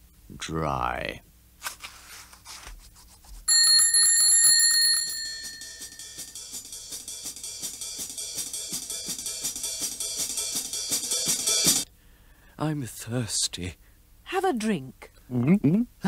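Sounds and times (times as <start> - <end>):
bell ringing: 3.5 - 6.5
cartoon music with drums and cymbals: 5.0 - 11.8.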